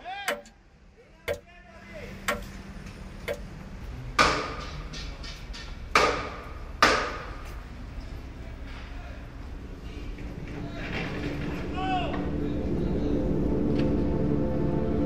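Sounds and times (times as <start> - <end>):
clock striking: 0.3 - 0.6, 2.2 - 2.6, 3.3 - 3.5
clock ticking: 0.3 - 0.6, 1.3 - 1.5, 2.3 - 2.5, 3.3 - 3.5.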